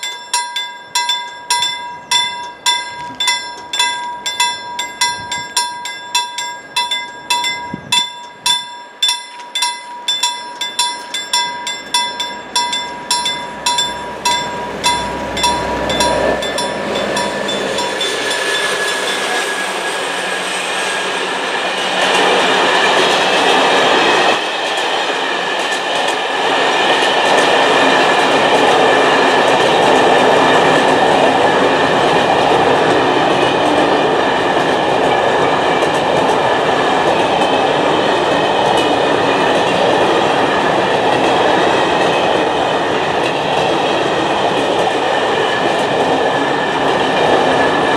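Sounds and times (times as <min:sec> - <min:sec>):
level crossing bell ringing: 0:00.0 - 0:19.4
diesel locomotive passing: 0:00.0 - 0:47.9
train wheels clacking on rails: 0:00.0 - 0:47.9.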